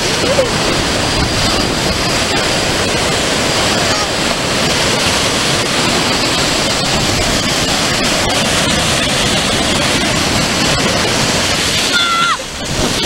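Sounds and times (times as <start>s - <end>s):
ocean waves breaking: 0.0s - 13.0s.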